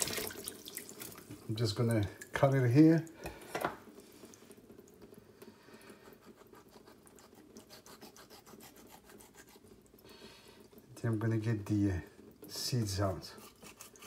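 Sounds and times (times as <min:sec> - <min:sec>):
knife scratching through pepper: 0:06.0 - 0:09.7, 0:13.2 - 0:14.0.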